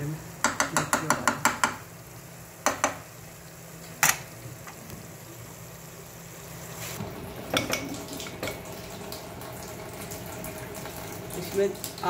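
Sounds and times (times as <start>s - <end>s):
knock on pressure cooker: 0.4s - 1.8s, 2.6s - 3.0s.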